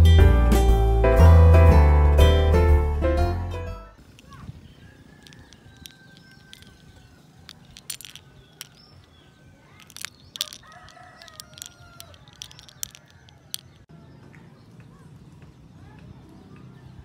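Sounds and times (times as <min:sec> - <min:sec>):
rooster crowing: 0:04.8 - 0:07.0, 0:10.4 - 0:13.6
metallic clicks of keychains: 0:05.2 - 0:09.1, 0:09.7 - 0:13.9.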